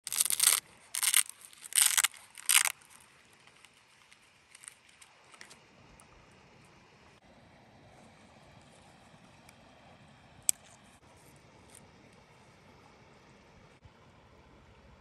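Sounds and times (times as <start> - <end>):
hook and loop pocket ripped open: 0.0 - 3.0.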